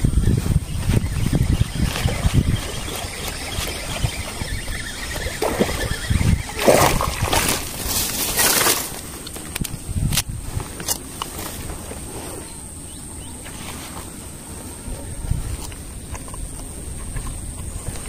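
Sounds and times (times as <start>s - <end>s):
rustling and scraping: 6.6s - 12.6s, 13.4s - 14.6s.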